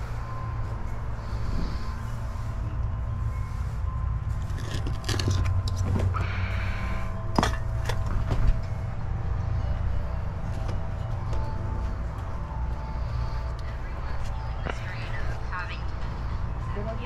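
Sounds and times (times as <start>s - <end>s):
low mechanical drone: 0.0s - 17.0s
knocks and clinks of pipe and paver: 4.3s - 13.6s.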